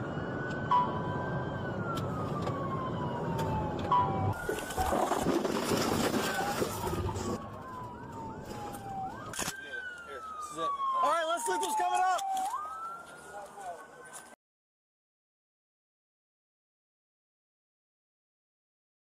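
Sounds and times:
engine and road noise: 0.0s - 14.4s
police siren wailing: 0.0s - 14.4s.

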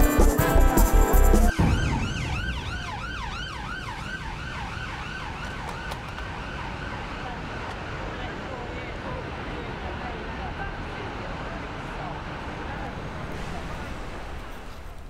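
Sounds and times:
emergency siren yelping: 1.5s - 7.4s
low traffic rumble: 1.5s - 15.0s.

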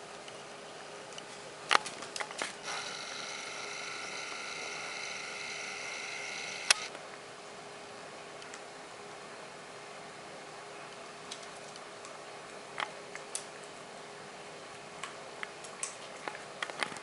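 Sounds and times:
camera zoom motor whirring: 2.6s - 6.9s
sharp clicks: 2.6s - 6.9s.

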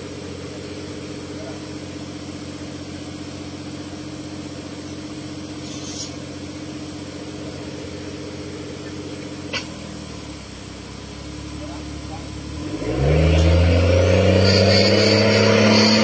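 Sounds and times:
buggy engine idling: 0.0s - 12.7s.

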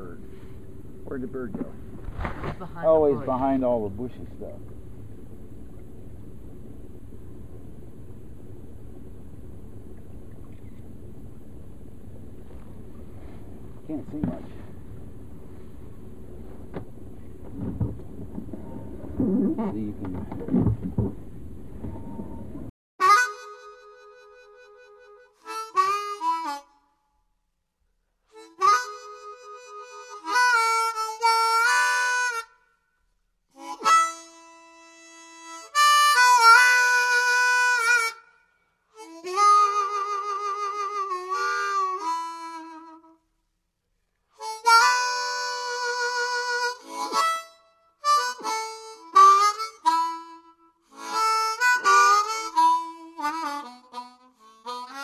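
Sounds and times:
harmonica music: 23.0s - 27.0s, 28.3s - 32.8s, 33.5s - 43.4s, 44.3s - 55.0s.

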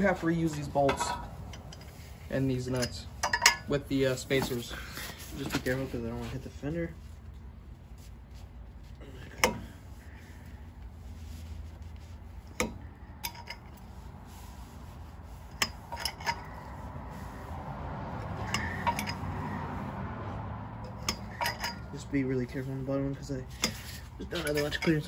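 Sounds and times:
metal tools clinking and clanking: 0.4s - 5.8s, 12.5s - 13.8s, 15.5s - 16.7s, 18.4s - 19.6s, 20.8s - 22.2s, 23.5s - 25.0s.

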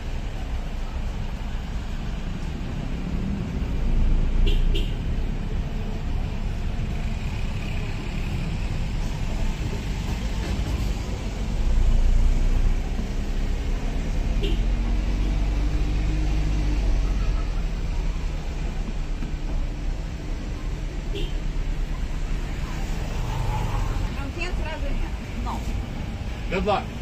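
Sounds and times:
road traffic rumble: 0.0s - 27.0s.

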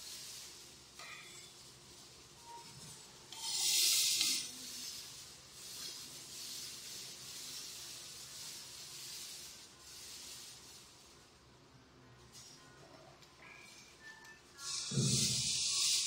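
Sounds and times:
gas burner hissing: 0.0s - 11.4s, 14.6s - 16.0s.

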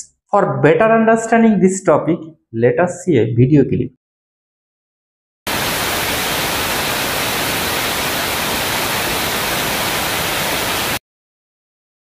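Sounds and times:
static hiss: 5.5s - 11.0s.

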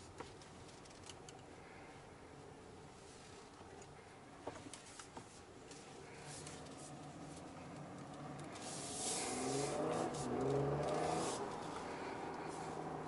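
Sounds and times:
car engine accelerating: 6.4s - 13.0s.

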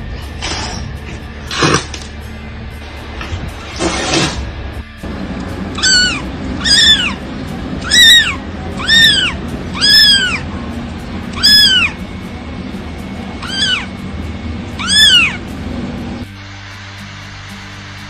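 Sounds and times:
kitten meowing: 5.8s - 7.2s, 7.8s - 10.5s, 11.4s - 12.0s, 13.4s - 13.9s, 14.8s - 15.4s.

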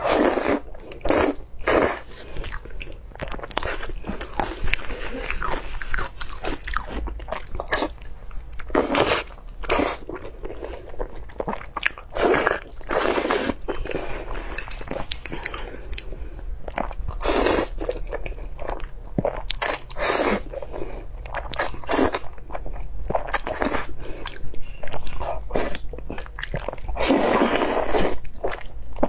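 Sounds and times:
slurping noodles: 0.0s - 2.6s, 12.1s - 15.9s, 17.2s - 17.8s, 26.9s - 28.2s
wet chewing: 0.1s - 29.0s.

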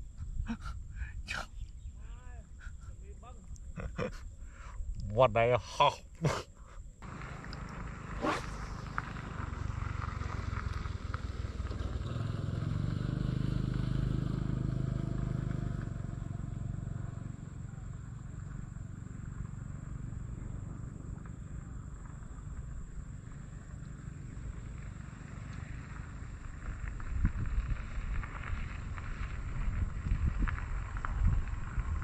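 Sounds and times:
vehicle engine passing by: 7.0s - 26.4s.

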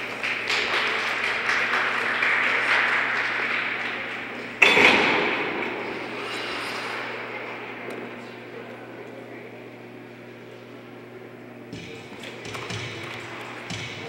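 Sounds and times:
audience applauding: 0.0s - 4.6s.

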